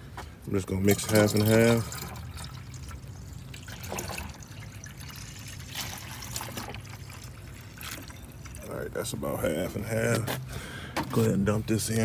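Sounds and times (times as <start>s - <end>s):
water trickling into plastic bottle: 0.8s - 8.8s.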